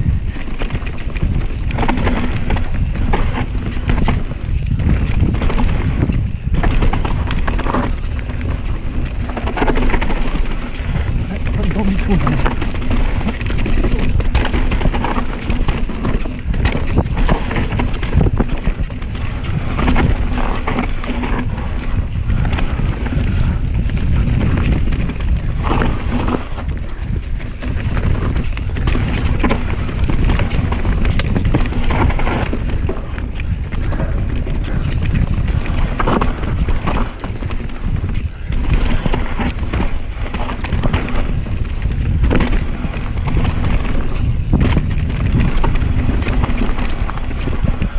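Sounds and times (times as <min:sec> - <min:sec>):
bike knocking and clattering: 0:00.0 - 0:47.9
tyres on dirt: 0:00.0 - 0:47.9
wind rumbling on microphone: 0:00.0 - 0:47.9.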